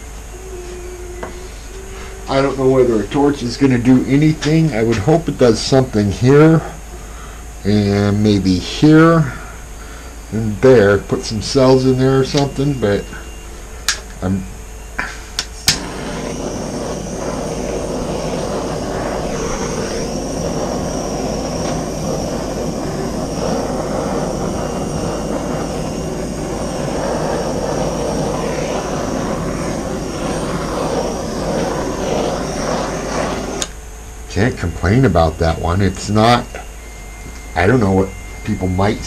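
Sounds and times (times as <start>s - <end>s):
torch click: 13.8s - 14.2s, 15.0s - 33.8s
torch flame rushing: 15.0s - 39.0s.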